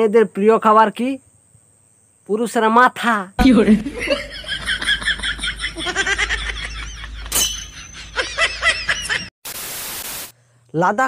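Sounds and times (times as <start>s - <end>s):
high-pitched laughing: 3.4s - 9.3s
static hiss: 9.4s - 10.4s.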